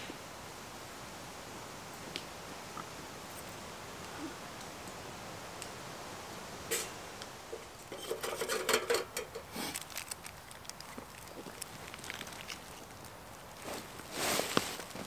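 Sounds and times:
wooden sticks clattering in metal stove: 0:06.7 - 0:09.6.

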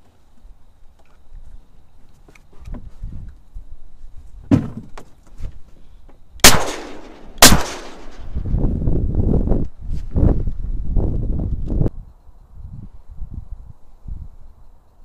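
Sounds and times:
shotgun shots: 0:06.4 - 0:08.4.

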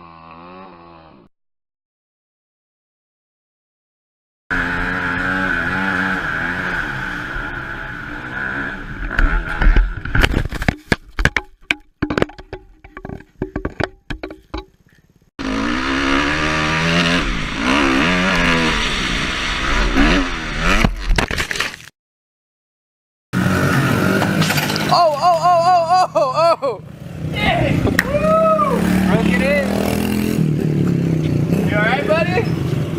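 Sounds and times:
motocross bike engine revving: 0:00.0 - 0:01.3, 0:04.5 - 0:10.3, 0:15.4 - 0:21.0, 0:23.4 - 0:24.9, 0:26.8 - 0:32.9
dirt bike engine running: 0:04.5 - 0:14.8, 0:15.4 - 0:20.9
bike crash knocks and scrapes: 0:09.0 - 0:14.8, 0:20.7 - 0:21.9, 0:24.1 - 0:25.0.

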